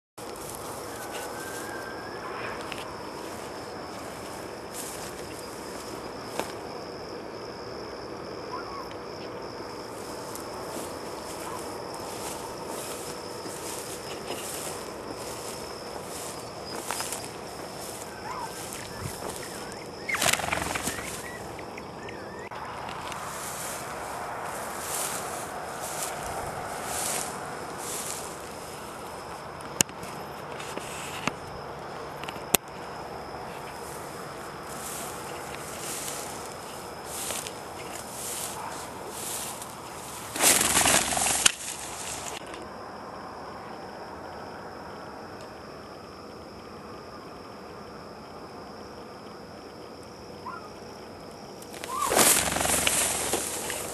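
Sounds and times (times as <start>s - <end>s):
branches scraping: 0.2s - 6.6s, 9.9s - 21.5s, 22.9s - 29.1s, 33.6s - 42.6s, 51.7s - 53.9s
high insect drone: 0.2s - 53.9s
dog rustling through dry grass: 9.9s - 21.4s, 23.3s - 28.6s, 34.7s - 42.4s, 51.8s - 53.9s
bird chirps: 17.9s - 22.5s.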